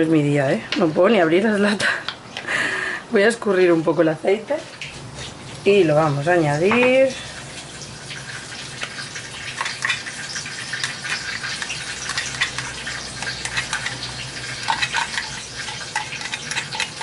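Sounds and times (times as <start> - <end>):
chicken sizzling in oil: 7.0 - 17.0
fork scraping a tin: 9.5 - 17.0.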